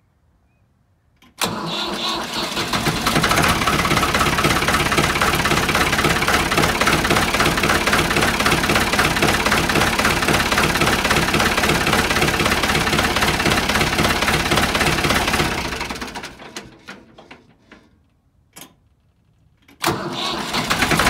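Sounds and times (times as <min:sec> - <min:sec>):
diesel tractor engine idling: 0:01.4 - 0:16.5.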